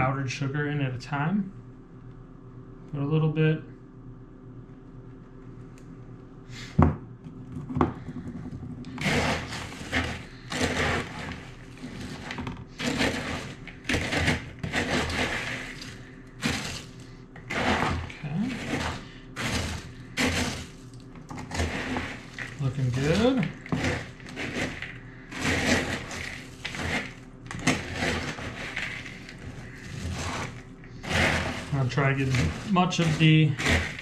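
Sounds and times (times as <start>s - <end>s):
spoon stirring sticky cereal: 9.0s - 20.9s, 21.5s - 34.0s.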